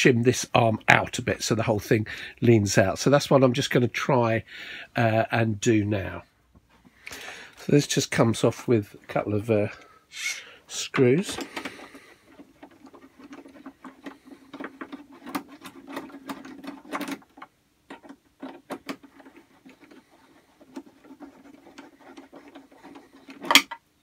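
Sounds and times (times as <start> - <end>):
screwdriver clicking and scratching: 11.0 - 23.8.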